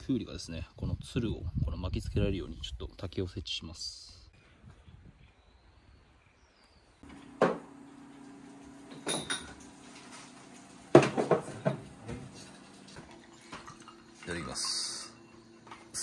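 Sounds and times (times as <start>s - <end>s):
dishes clattering: 9.0s - 9.7s, 10.9s - 12.6s.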